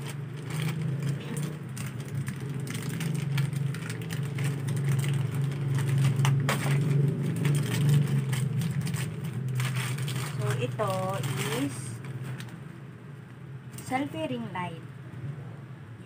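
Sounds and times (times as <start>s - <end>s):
plastic packaging crinkling: 0.0s - 12.7s.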